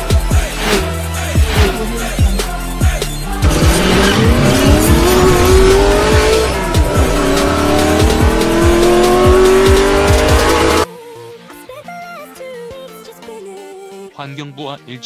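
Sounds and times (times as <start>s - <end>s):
electronic beat with bass thumps: 1.4s - 10.9s
car engine revving up: 3.3s - 10.9s.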